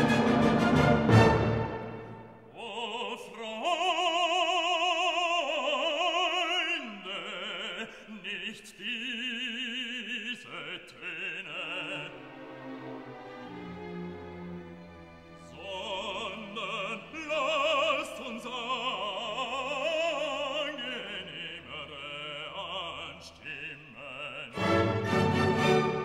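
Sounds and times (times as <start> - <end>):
operatic voice singing: 2.4 - 12.6, 15.4 - 26.0.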